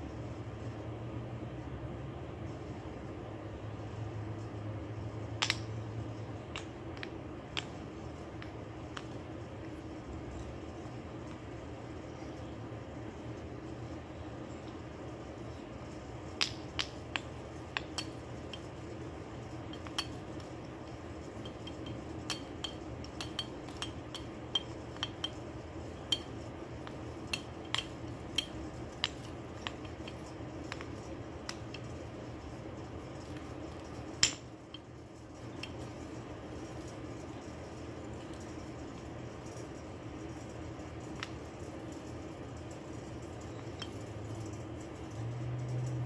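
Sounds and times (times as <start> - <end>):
steady low hum: 0.0 - 46.0
marionette limbs clicking on wood: 5.3 - 10.6, 15.4 - 32.0.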